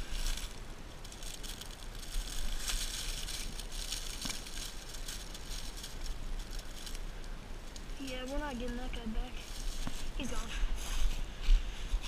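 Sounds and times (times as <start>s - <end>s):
dry leaves rustling and crunching: 0.0s - 11.9s.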